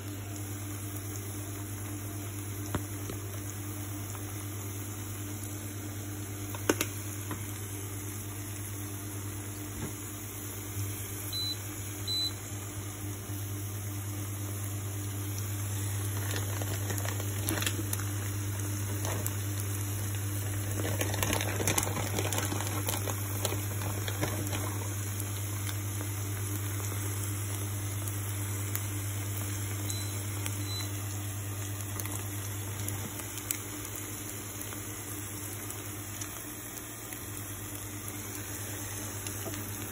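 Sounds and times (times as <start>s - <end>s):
food sizzling in a pan: 0.0s - 39.9s
crackling and rustling: 15.8s - 25.0s.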